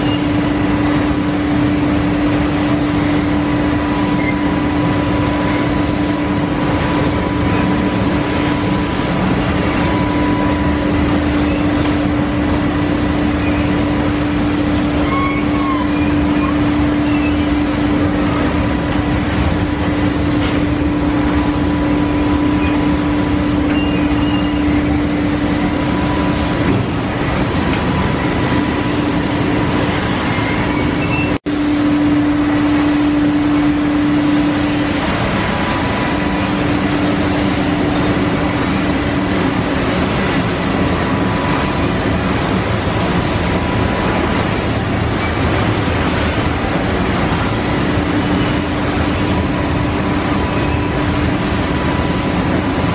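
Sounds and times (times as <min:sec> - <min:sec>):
machinery humming: 0:00.0 - 0:52.9.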